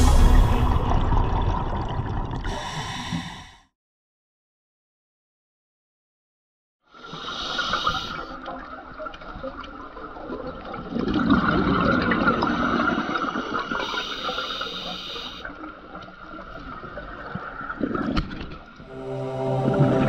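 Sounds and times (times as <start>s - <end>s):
bubbling exhaled air: 0.7s - 3.6s
regulator hissing inhalations: 2.5s - 3.7s, 7.0s - 8.3s, 13.5s - 15.4s.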